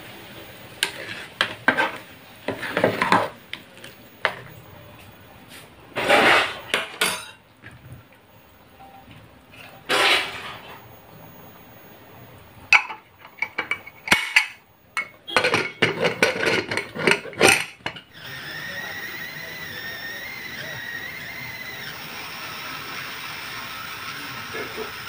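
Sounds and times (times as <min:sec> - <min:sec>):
pressure cooker hissing: 0:09.9 - 0:25.0
pot lid clanking against pot: 0:12.7 - 0:18.0.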